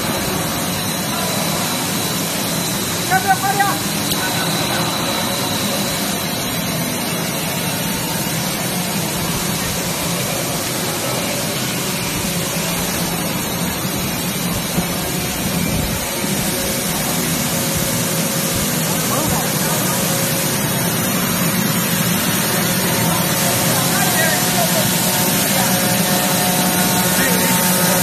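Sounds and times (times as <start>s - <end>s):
machine hum: 0.0s - 28.0s.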